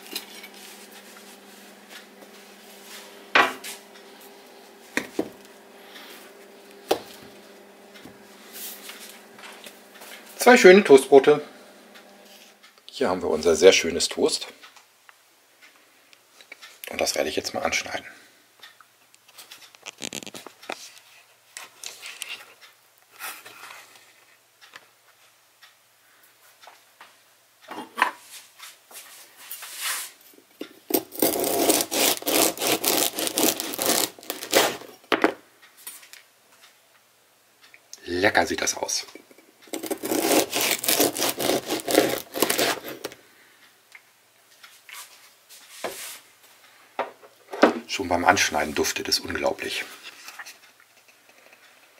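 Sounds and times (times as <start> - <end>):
knife scrapes and knocks on board: 3.4 - 3.8
knife rasping through bread crust: 30.9 - 34.8, 39.7 - 43.2.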